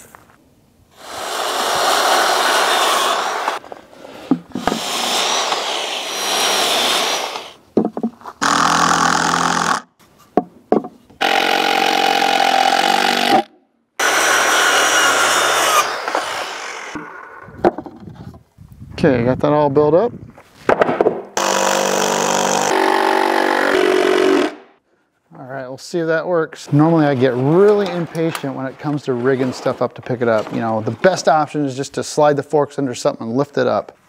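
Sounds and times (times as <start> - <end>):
cordless drill driving screws: 1.0 - 3.7, 4.6 - 7.6, 8.4 - 9.8, 11.2 - 17.0, 21.4 - 24.5
circular saw cutting wood: 1.0 - 7.6, 8.4 - 9.9, 11.2 - 17.5, 21.4 - 24.6.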